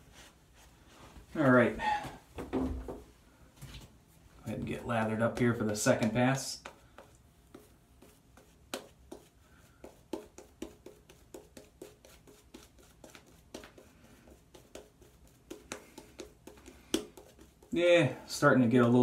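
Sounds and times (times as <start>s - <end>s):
shaving brush wet strokes: 4.7s - 18.5s.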